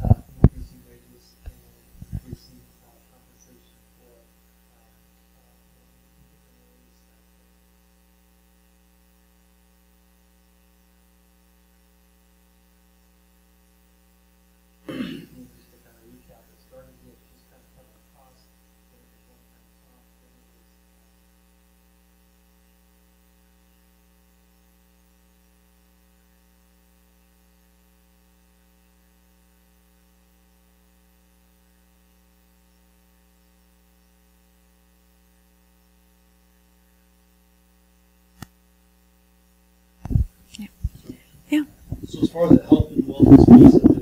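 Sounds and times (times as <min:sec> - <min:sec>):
electrical mains hum: 0:00.0 - 0:44.0.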